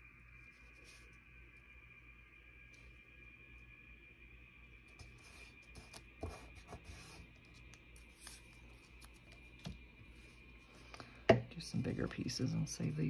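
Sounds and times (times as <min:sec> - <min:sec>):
paper rustling: 0:05.0 - 0:10.9.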